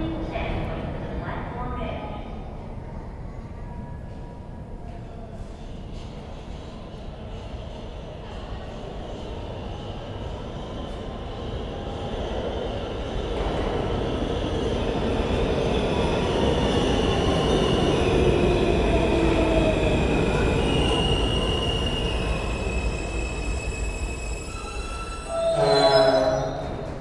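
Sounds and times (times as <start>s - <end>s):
subway train pulling in: 0.0s - 27.0s
wheels squealing: 21.0s - 27.0s.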